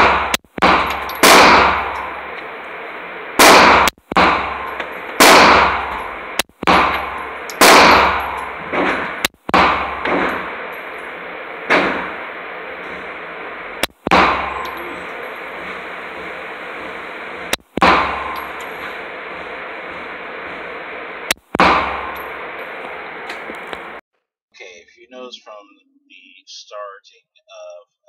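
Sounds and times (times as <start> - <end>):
pistol shots echoing indoors: 0.0 - 2.2, 3.4 - 13.1.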